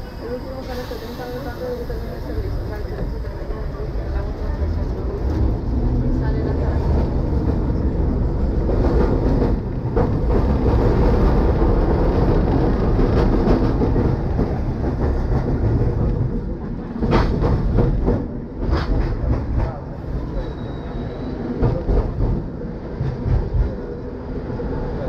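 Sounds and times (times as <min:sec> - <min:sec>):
tram wheels rumbling on rails: 0:00.0 - 0:25.0
wheels knocking on track: 0:06.8 - 0:19.8.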